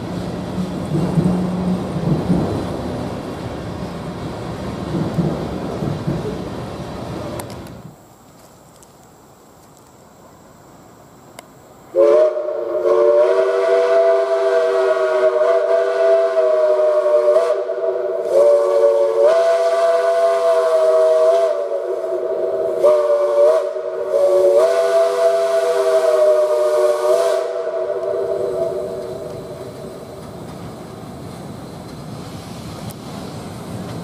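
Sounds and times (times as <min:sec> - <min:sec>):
steam locomotive chime whistle: 0:11.9 - 0:29.8.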